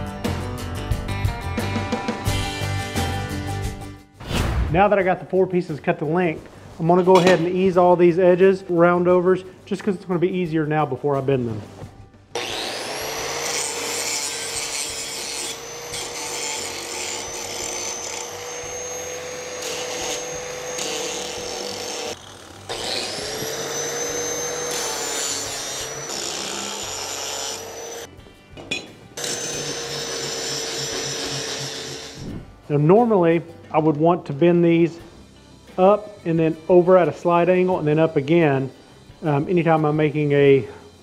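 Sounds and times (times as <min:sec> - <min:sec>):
angle grinder grinding steel: 0:12.4 - 0:28.1, 0:29.2 - 0:32.3.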